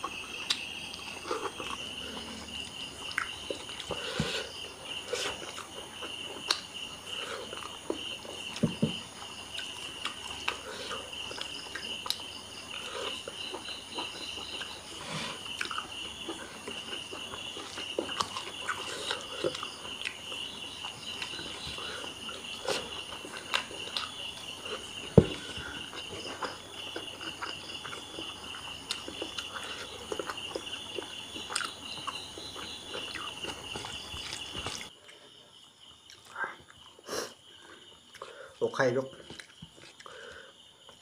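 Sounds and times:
crickets chirping: 0.0 - 41.0.

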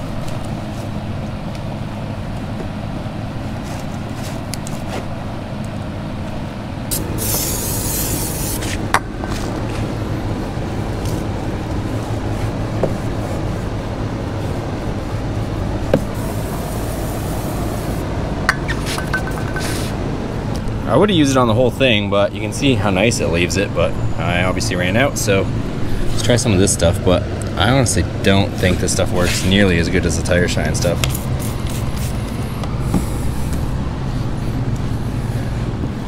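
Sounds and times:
steady low drone: 5.1 - 36.0
aerosol can spraying hiss: 6.9 - 8.8, 16.0 - 18.0, 31.0 - 32.2.

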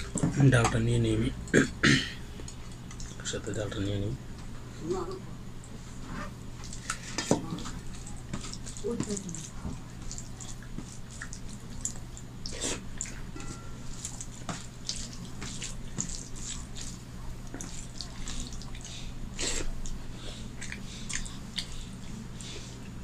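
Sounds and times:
close mouth eating sounds: 6.6 - 13.2, 14.0 - 23.0.

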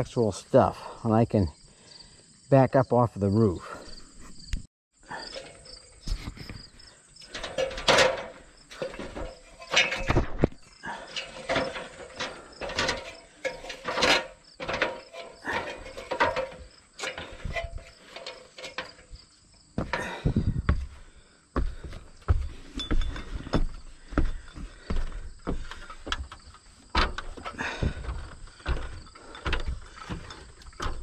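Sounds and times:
metal ladder knocks and clanks: 5.2 - 6.5, 7.2 - 20.9, 21.7 - 31.0
footsteps on metal roof: 5.3 - 31.0.

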